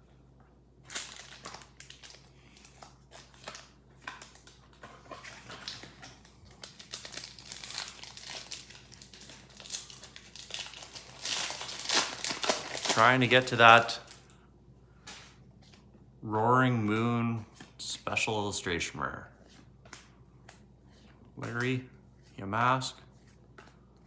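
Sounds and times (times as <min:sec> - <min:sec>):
foil wrapper crinkling: 0:00.8 - 0:14.4.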